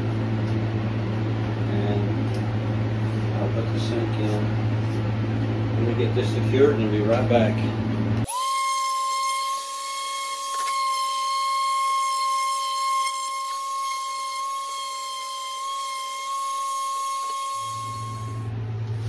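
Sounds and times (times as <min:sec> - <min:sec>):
orbital sander whining on wood: 0:08.2 - 0:18.5.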